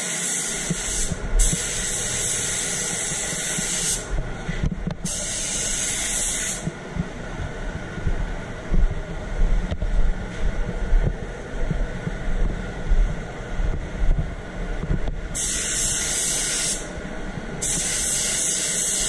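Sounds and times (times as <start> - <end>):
spray gun hissing: 0.0 - 4.1, 5.0 - 6.7, 15.4 - 17.0, 17.6 - 19.0
low rushing noise: 1.0 - 15.4.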